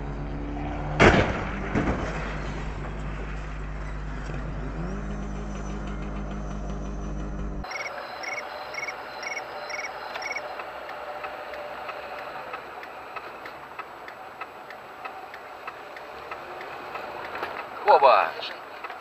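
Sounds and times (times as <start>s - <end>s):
car road and engine noise: 0.0s - 19.0s
turn signal ticking: 4.8s - 19.0s
short high beeps: 7.7s - 10.4s.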